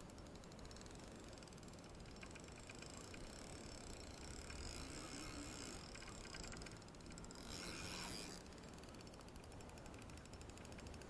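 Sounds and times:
fishing reel ticking: 0:00.0 - 0:11.0.

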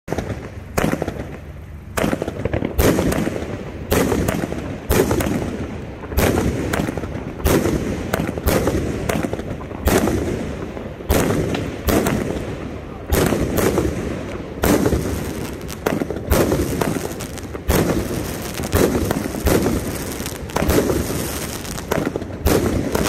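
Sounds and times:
crackly rumble: 0:00.1 - 0:23.0
firework shells banging: 0:00.1 - 0:23.0.

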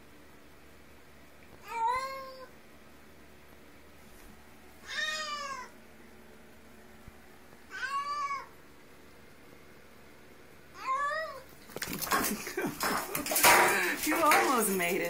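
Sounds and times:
cat meowing: 0:01.6 - 0:02.5, 0:04.8 - 0:05.8, 0:07.7 - 0:08.5, 0:10.7 - 0:11.5.

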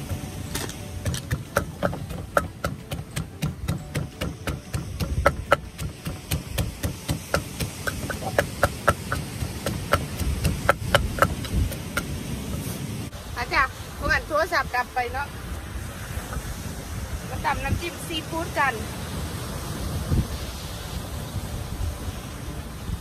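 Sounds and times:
wooden pestle pounding in mortar: 0:00.0 - 0:12.7.

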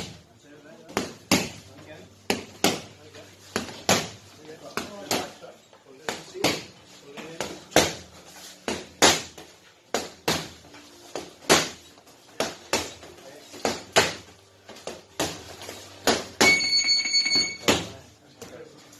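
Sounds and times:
boxing gloves slapping: 0:07.7 - 0:13.0.

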